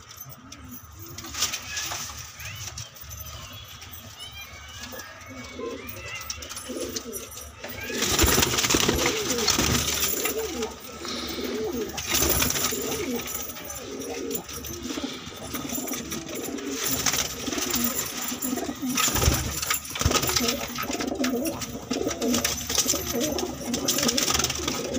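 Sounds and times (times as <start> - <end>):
pigeons cooing: 5.2 - 24.9.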